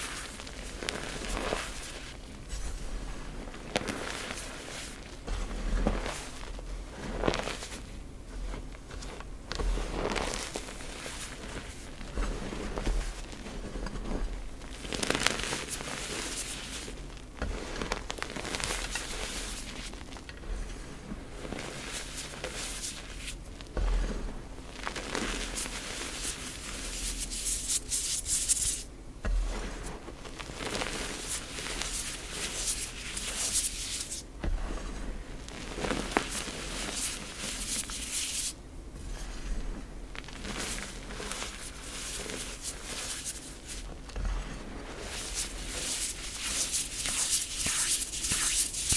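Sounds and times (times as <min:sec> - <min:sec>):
chalk powder crunching and squeaking: 0:25.0 - 0:28.9, 0:30.5 - 0:34.2, 0:35.6 - 0:38.5, 0:40.4 - 0:43.9, 0:44.8 - 0:48.9.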